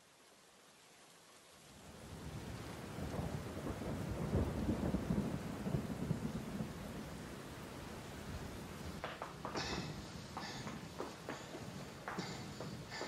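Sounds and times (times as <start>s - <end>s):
steady rain falling: 0.0s - 13.0s
low rumble of thunder: 2.0s - 9.1s.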